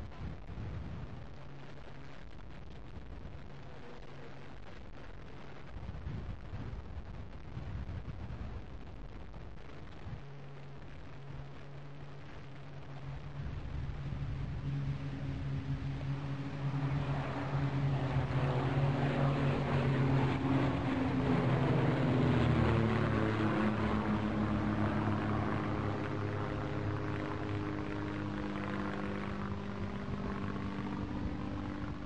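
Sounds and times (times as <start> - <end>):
propeller planes flying over: 0.0 - 32.0.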